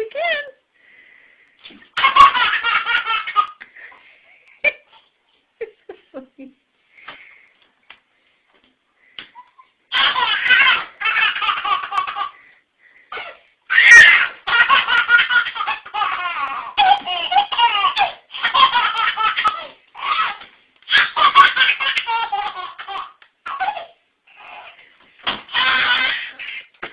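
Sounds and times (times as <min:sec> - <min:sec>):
baby laughing: 0:01.9 - 0:03.7, 0:09.3 - 0:12.4, 0:13.1 - 0:24.8, 0:25.5 - 0:26.9.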